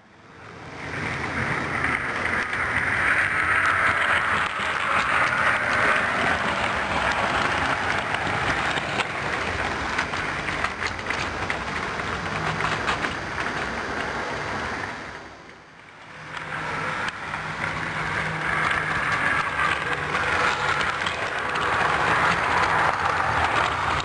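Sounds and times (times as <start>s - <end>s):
model train running on track: 0.0s - 24.0s.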